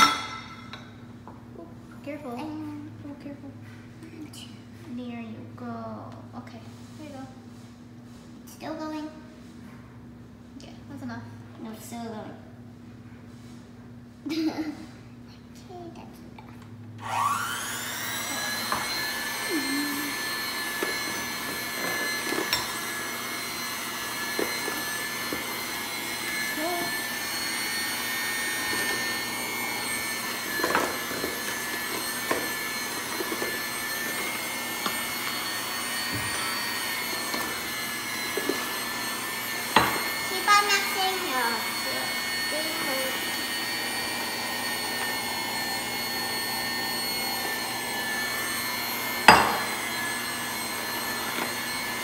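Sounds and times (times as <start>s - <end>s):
electric hand mixer whine: 17.0s - 52.0s.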